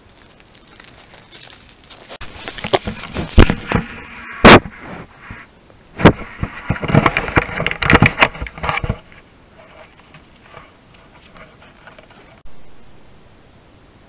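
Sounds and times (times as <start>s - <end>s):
faint hiss: 9.0s - 14.0s.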